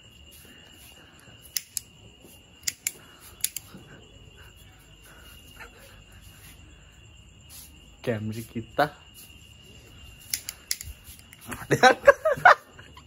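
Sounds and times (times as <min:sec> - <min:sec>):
crickets chirping: 0:00.0 - 0:13.0
sharp clicks: 0:01.5 - 0:01.9, 0:02.6 - 0:03.7, 0:10.2 - 0:11.5.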